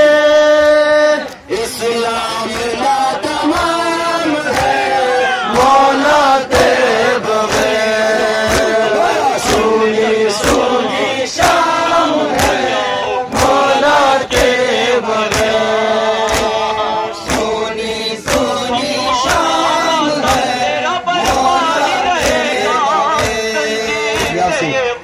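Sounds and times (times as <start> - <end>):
men chanting in unison: 0.0 - 25.0
chest-beating slaps: 12.3 - 12.6, 15.2 - 15.6, 16.2 - 17.6, 18.2 - 20.6, 21.2 - 23.4, 24.1 - 24.4.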